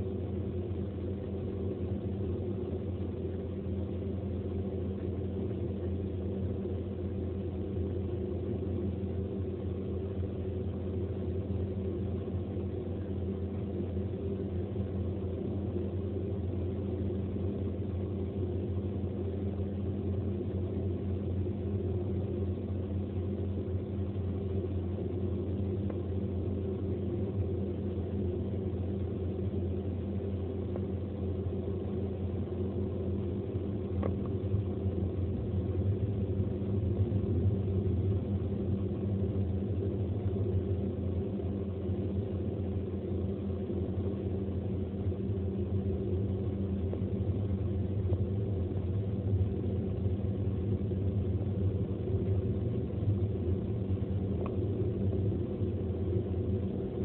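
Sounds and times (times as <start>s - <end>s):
car interior road drone: 0.0s - 57.0s.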